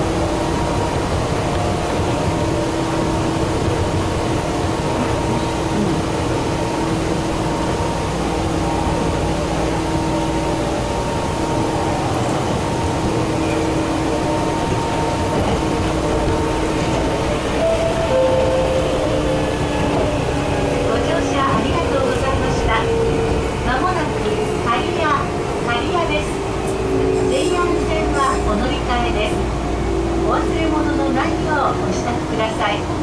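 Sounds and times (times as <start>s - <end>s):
train motor hum: 0.0s - 32.7s
wheels rumbling on rail: 0.0s - 33.0s.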